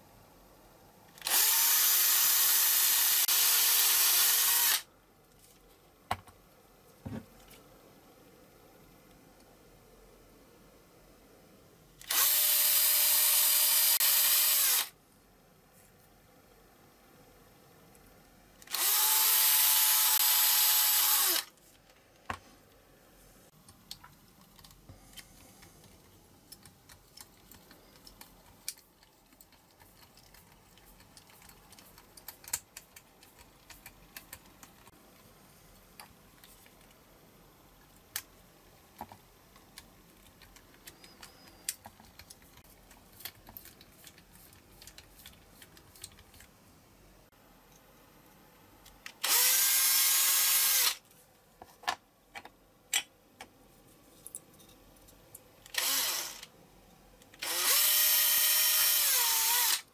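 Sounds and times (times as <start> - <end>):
cordless drill drilling: 1.2 - 4.8, 12.0 - 14.9, 18.7 - 21.5, 49.2 - 51.0, 55.7 - 56.5, 57.4 - 59.9.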